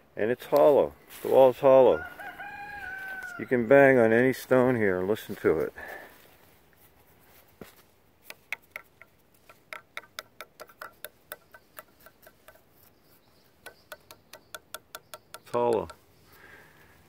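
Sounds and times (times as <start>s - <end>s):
fingers tapping on stones: 8.2s - 16.1s.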